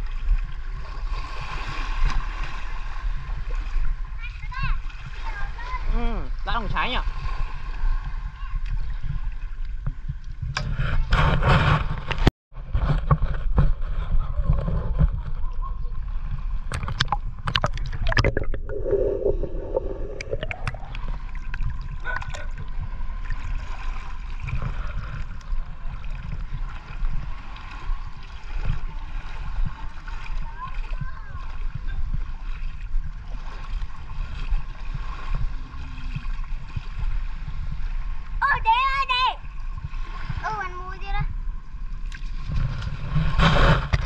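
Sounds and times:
water sloshing and splashing: 0.0 - 44.0
steady low rumble: 15.4 - 38.4.

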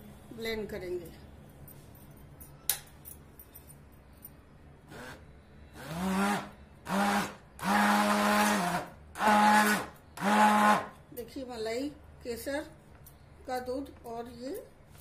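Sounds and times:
hand blender motor hum: 5.8 - 10.9.

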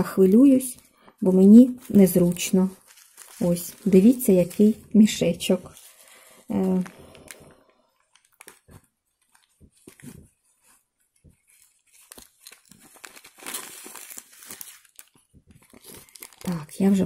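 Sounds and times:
crinkling rustle: 0.0 - 17.0
fabric pouch rustling: 0.8 - 17.0.

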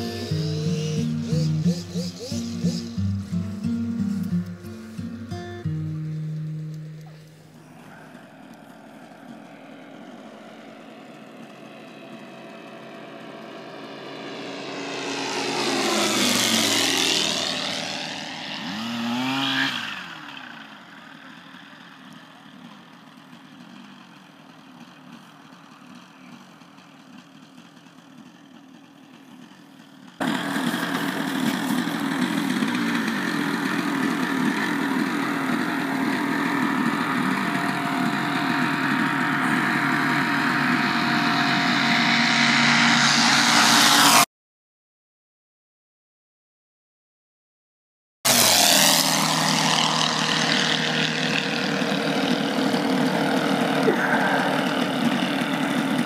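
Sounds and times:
propeller aircraft flying past: 0.0 - 44.3, 48.3 - 56.0.

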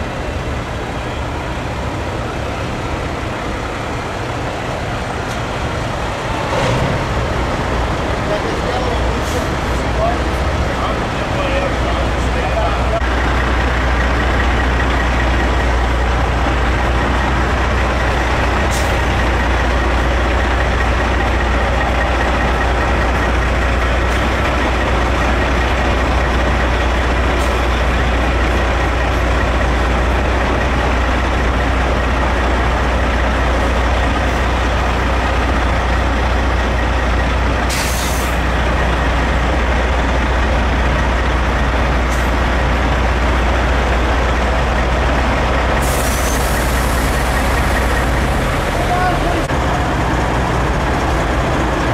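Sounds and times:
diesel engine idling: 0.0 - 51.9
air brake hissing: 18.7 - 19.1, 37.7 - 38.4, 45.8 - 48.0.

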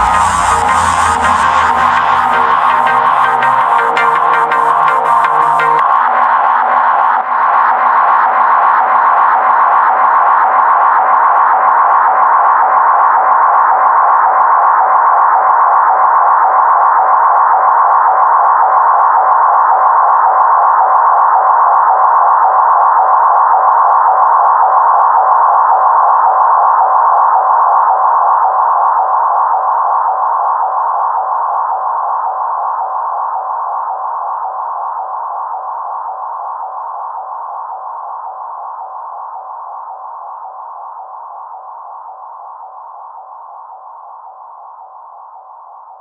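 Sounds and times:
steady synthesizer tone: 0.0 - 7.3.

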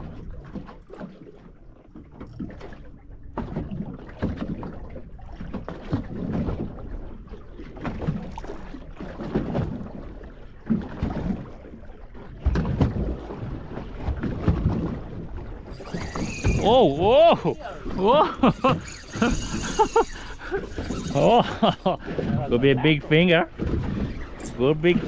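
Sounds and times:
water slapping against boat hull: 0.0 - 25.0
knocks of rocking boat: 1.9 - 6.8, 7.7 - 19.4, 20.8 - 25.0.

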